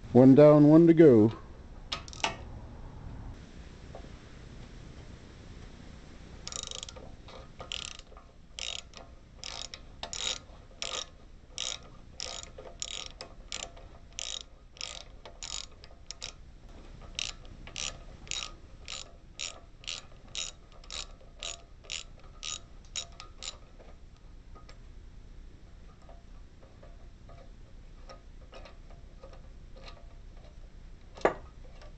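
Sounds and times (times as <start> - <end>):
ratchet clicking: 1.9 - 2.4, 6.4 - 16.4, 17.0 - 23.9.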